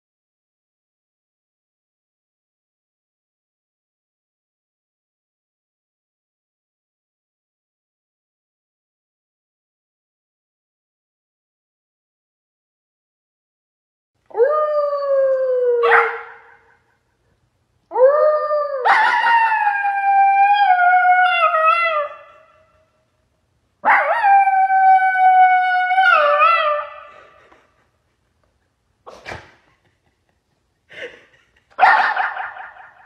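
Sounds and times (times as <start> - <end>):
puppy howling into microphone: 14.3 - 16.6, 17.9 - 22.6, 23.8 - 27.1.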